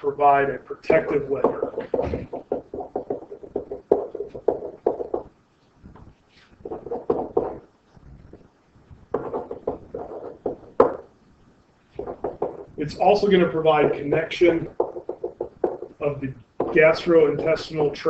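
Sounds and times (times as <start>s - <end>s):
stylus tapping and scratching tablet: 0.0s - 18.0s.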